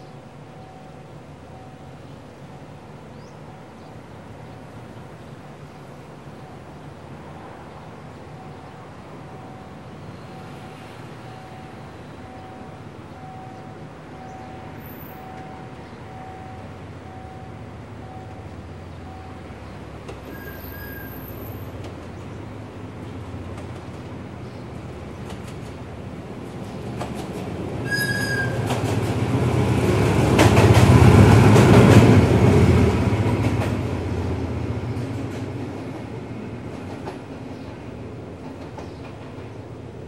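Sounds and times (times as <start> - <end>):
locomotive engine drone: 0.0 - 25.3.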